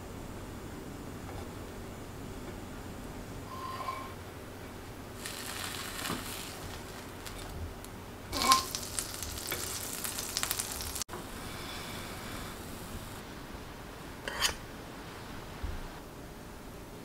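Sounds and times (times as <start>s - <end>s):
butter sizzling in a frying pan: 5.2s - 7.6s, 8.3s - 11.1s.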